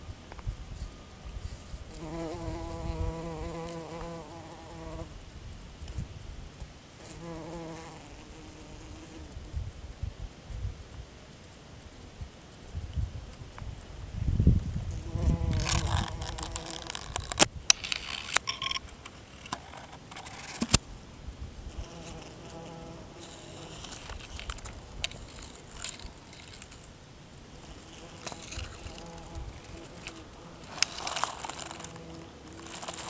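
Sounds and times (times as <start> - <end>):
flying insect buzzing: 1.5 - 5.2, 7.0 - 9.7, 14.8 - 17.5, 21.6 - 33.0
rustling: 14.8 - 20.9, 21.8 - 33.0.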